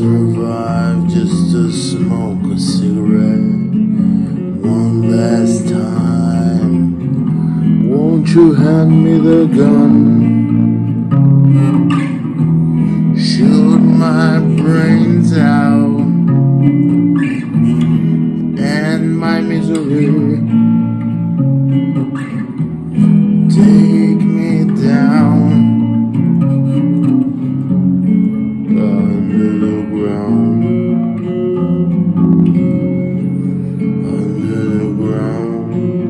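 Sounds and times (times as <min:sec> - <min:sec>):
man singing: 0:00.0 - 0:10.9, 0:11.6 - 0:16.4, 0:17.2 - 0:20.7, 0:23.3 - 0:26.0, 0:28.3 - 0:31.4, 0:33.6 - 0:36.0
electric guitar chords: 0:00.0 - 0:36.0.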